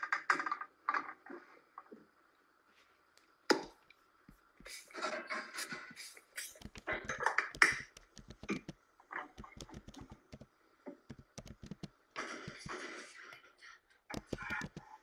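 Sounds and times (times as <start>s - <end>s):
small clicks and taps: 6.4s - 13.5s, 14.1s - 15.0s.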